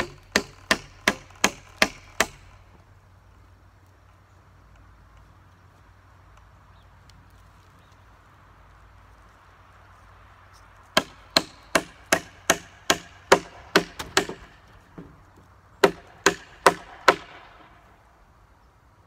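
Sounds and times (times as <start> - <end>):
hammer driving nails into wood: 0.0 - 2.5, 11.0 - 15.1, 15.8 - 17.7.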